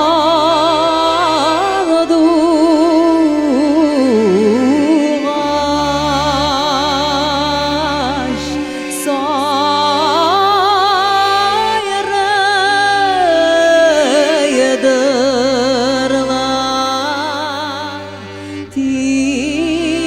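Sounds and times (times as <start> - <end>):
woman singing with vibrato: 0.0 - 20.0
accordions playing chords: 5.2 - 20.0.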